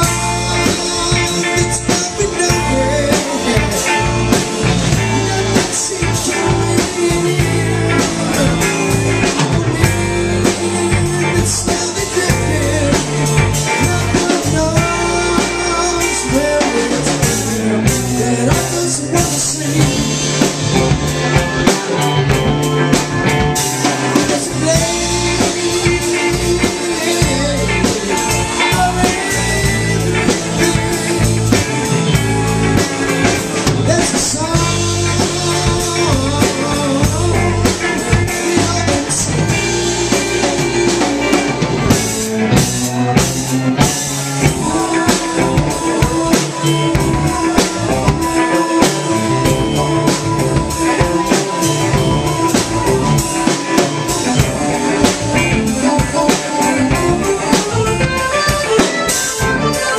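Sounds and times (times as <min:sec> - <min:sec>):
bass guitar: 0:00.0 - 0:59.9
drum kit: 0:00.0 - 0:59.9
electric guitar: 0:00.0 - 0:59.9
keyboard: 0:00.0 - 0:59.9.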